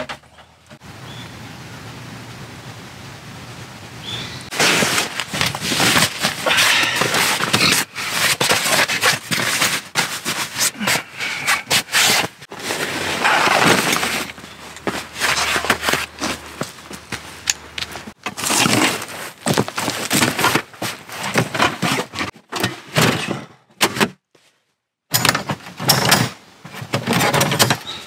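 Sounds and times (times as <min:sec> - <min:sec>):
canvas rustling over leaves: 0:04.1 - 0:22.3.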